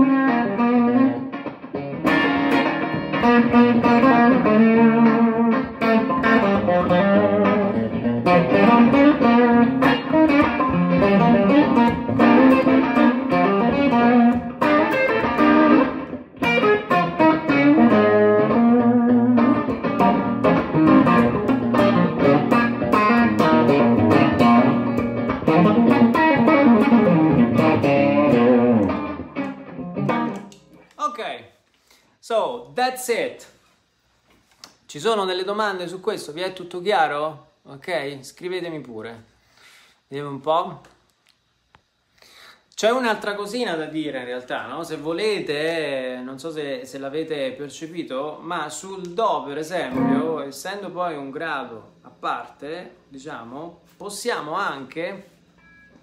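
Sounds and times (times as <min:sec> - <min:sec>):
electric guitar playing blues: 0:00.0 - 0:30.8, 0:49.8 - 0:51.3.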